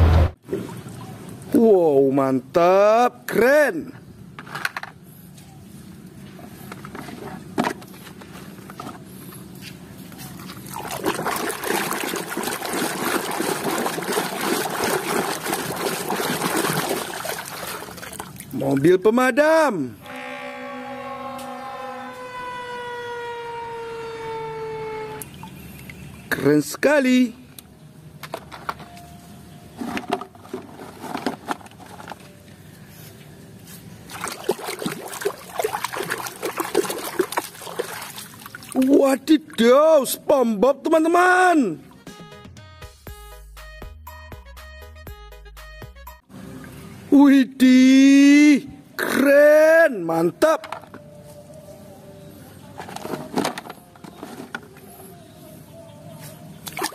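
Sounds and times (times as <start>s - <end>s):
hand sloshing soapy water: 10.2s - 18.9s, 34.1s - 39.0s, 56.6s - 56.9s.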